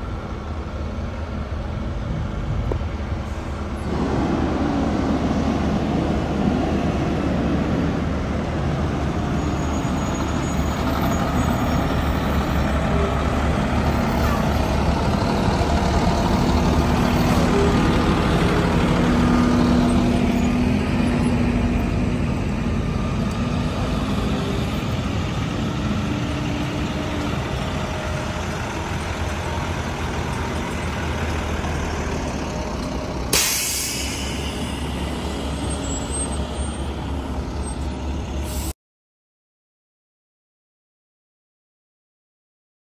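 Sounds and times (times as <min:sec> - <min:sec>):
diesel engines idling: 0:00.0 - 0:38.7
loud air hiss: 0:33.3 - 0:35.1.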